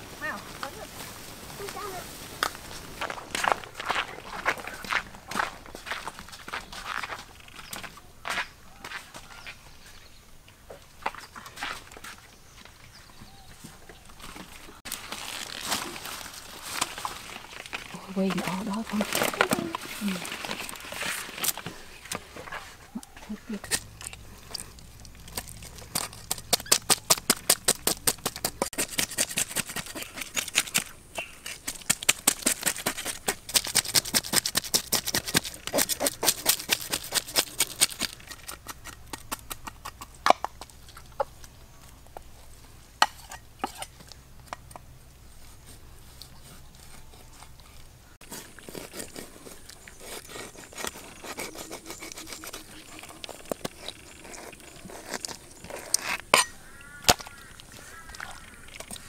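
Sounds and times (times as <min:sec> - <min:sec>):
cleaver scraping fish scales: 0:15.0 - 0:40.1, 0:45.4 - 0:59.0.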